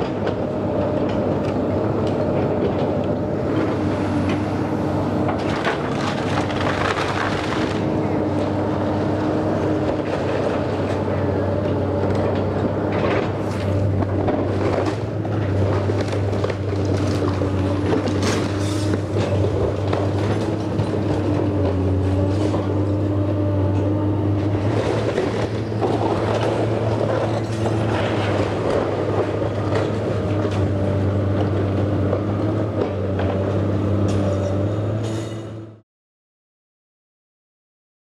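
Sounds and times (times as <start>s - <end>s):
excavator diesel engine running: 0.0s - 35.8s
timber cracking and splintering: 5.2s - 8.0s
debris falling: 5.3s - 7.9s.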